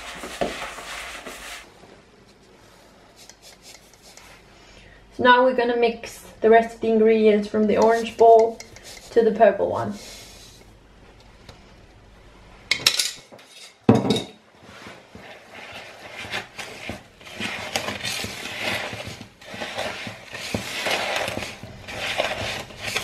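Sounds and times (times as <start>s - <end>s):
wooden spoon scraping dough in bowl: 0.0s - 1.7s, 3.2s - 4.4s, 7.7s - 10.7s, 14.6s - 23.0s.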